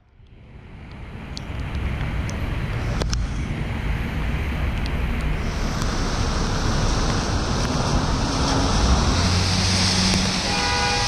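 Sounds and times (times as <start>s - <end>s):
low hum of motor traffic: 0.0s - 11.0s
wet tyres hissing on road: 5.3s - 11.0s.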